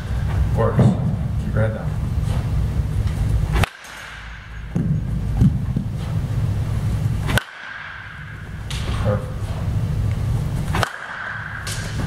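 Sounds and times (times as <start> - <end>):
low background rumble: 0.0 - 12.0
baseball bat cracks: 3.5 - 5.0, 7.2 - 9.0, 10.6 - 12.0.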